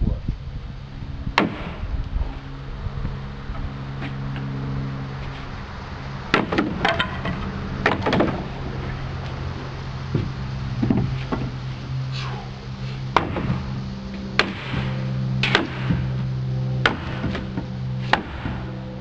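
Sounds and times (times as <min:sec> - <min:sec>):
low hum: 0:00.0 - 0:19.0
wooden knocks and cracks: 0:06.3 - 0:09.0, 0:10.1 - 0:11.6.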